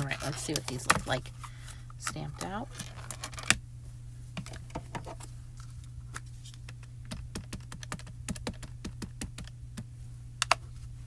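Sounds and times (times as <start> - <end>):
ink pad tapping on stamps: 7.1 - 9.5.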